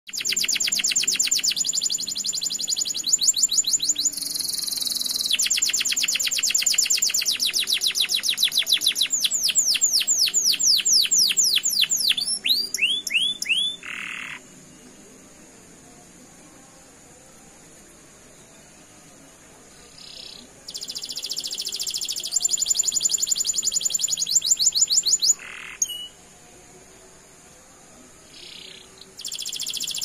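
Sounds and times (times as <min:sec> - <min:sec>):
canary singing trills: 0:00.1 - 0:14.6, 0:19.9 - 0:26.2, 0:28.3 - 0:30.0.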